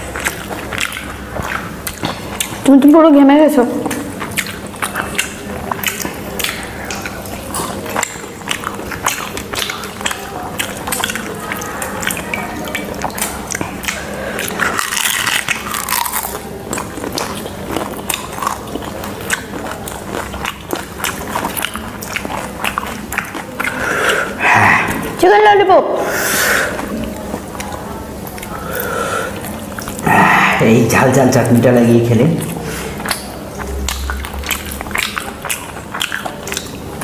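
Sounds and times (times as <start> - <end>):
crunchy chewing: 0.0 - 3.0, 3.8 - 25.2, 26.7 - 30.4, 32.4 - 37.0
wet mouth sounds: 0.0 - 3.0, 3.7 - 25.3, 26.0 - 31.6, 32.3 - 37.0.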